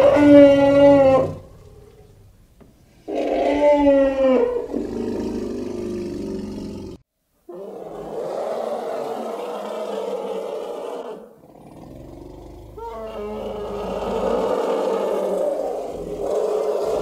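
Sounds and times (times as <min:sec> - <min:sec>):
elephant trumpeting: 0:00.0 - 0:02.2, 0:03.0 - 0:06.8, 0:12.5 - 0:17.0
rough elephant call: 0:00.0 - 0:17.0.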